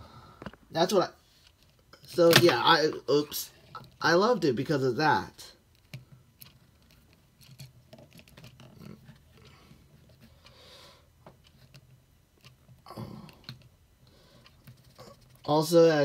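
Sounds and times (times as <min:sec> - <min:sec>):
plastic toy clicks and rubbing: 0:05.6 - 0:10.5, 0:11.3 - 0:15.6.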